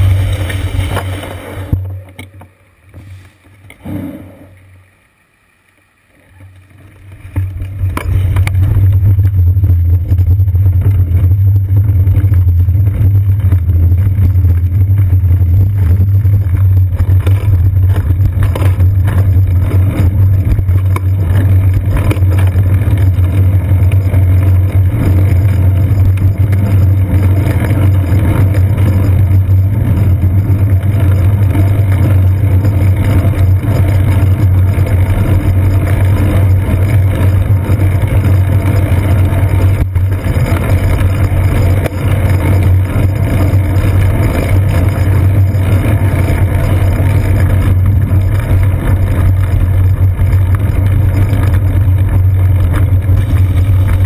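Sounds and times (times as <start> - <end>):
wind noise: 0.0 - 2.0, 7.2 - 54.0
road vibration rumble: 0.0 - 5.0, 6.1 - 54.0.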